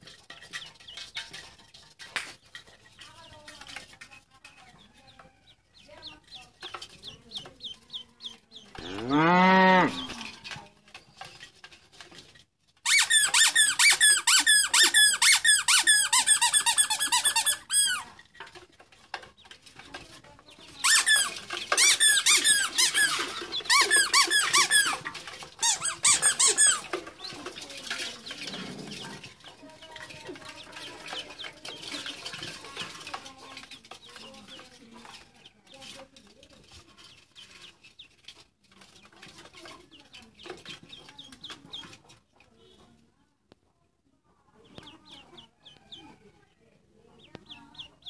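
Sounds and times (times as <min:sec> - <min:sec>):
ducklings peeping: 0:02.4 - 0:09.0, 0:20.3 - 0:36.0, 0:37.0 - 0:43.0, 0:44.6 - 0:46.3, 0:47.0 - 0:48.0.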